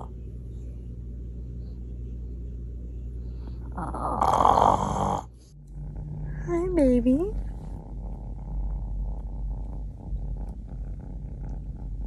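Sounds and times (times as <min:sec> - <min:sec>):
steady low hum: 0:00.0 - 0:12.0
dog snoring: 0:03.4 - 0:06.5.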